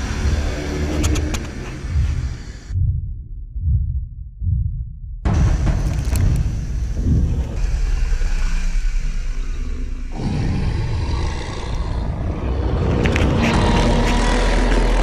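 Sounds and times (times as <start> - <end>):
off-road engines revving hard: 0.0 - 2.7, 10.1 - 15.0.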